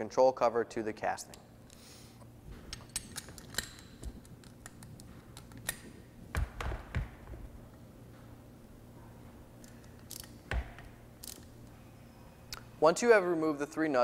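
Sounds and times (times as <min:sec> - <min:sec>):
socket wrench clicking on metal: 0:02.7 - 0:05.9, 0:09.6 - 0:10.4, 0:11.2 - 0:11.5.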